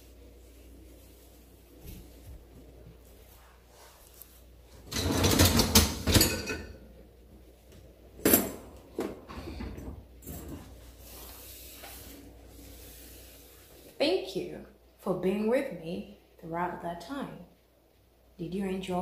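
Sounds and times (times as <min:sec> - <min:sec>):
dishes clattering: 0:04.8 - 0:06.9, 0:08.2 - 0:10.6.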